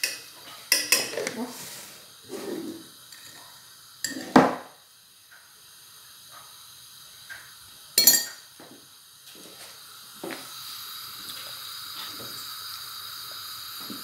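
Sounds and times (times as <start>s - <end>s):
metal spoon clinking: 0.0s - 1.2s, 3.1s - 3.4s, 4.0s - 4.4s, 8.0s - 8.4s.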